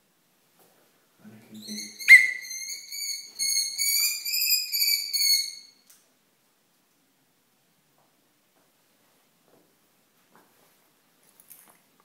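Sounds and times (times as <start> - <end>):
kestrel whining call: 1.6 - 5.8.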